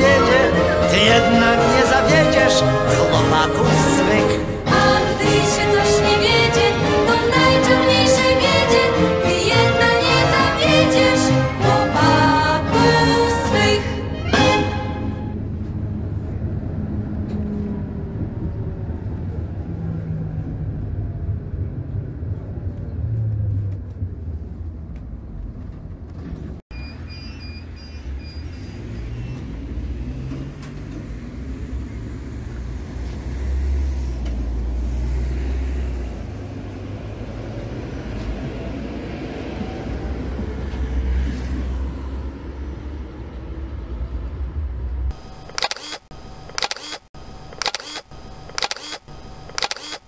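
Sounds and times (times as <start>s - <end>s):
tram pulling away rumble: 0.0s - 45.1s
tram motor gear whine: 15.2s - 34.9s
short beeps: 26.7s - 28.8s.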